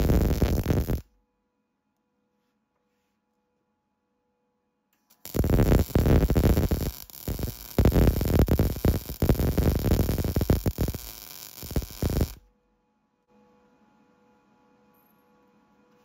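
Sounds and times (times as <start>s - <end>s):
arc welder crackling: 0.0s - 1.0s, 5.2s - 12.4s.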